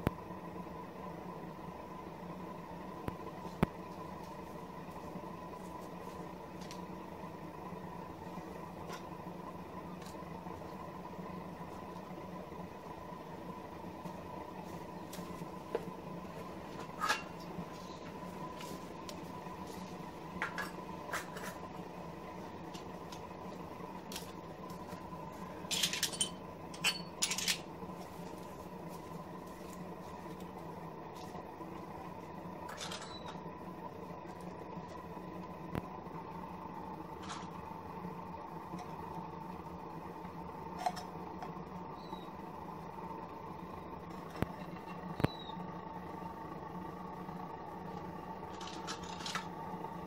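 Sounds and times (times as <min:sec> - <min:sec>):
steady low hum: 0:00.0 - 0:50.0.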